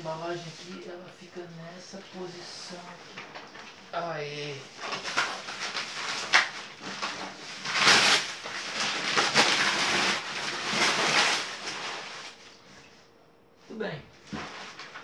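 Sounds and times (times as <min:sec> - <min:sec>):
paper rustling and tearing: 0:02.3 - 0:12.6, 0:14.2 - 0:15.0.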